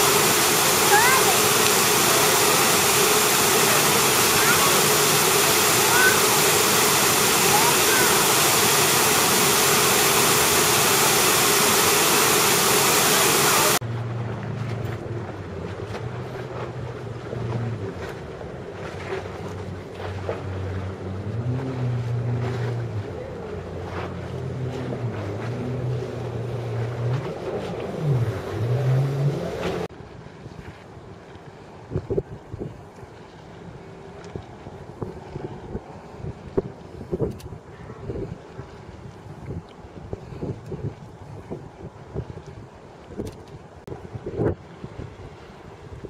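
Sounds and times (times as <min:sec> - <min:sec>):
engine running: 0:00.0 - 0:29.9
low hum: 0:00.0 - 0:29.9
fountain water rushing: 0:00.0 - 0:37.0
wind buffeting microphone: 0:20.4 - 0:46.0.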